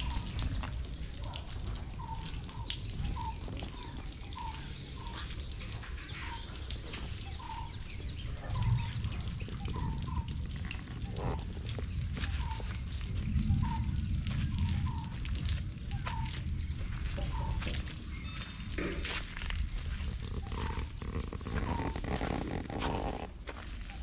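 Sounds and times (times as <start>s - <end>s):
three-wheeler engine rumble: 15.6s - 23.7s.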